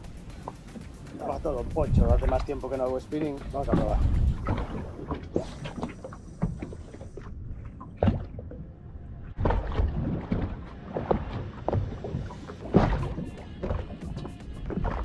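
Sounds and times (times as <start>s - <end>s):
water lapping against boat hull: 0.0s - 15.0s
knocks on boat: 3.5s - 5.2s, 12.7s - 15.0s.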